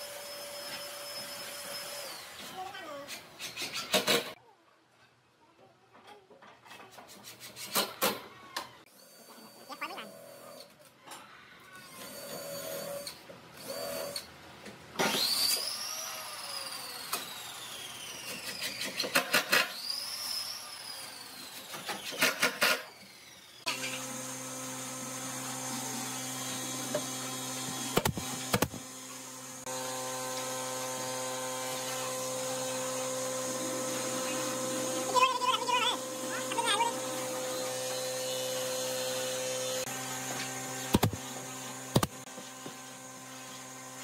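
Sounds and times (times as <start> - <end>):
cordless drill motor whine: 0.0 - 2.4, 11.8 - 14.3, 15.1 - 18.5, 22.9 - 35.2, 36.0 - 44.0
drill rapid clicking: 27.6 - 28.9, 40.9 - 41.2.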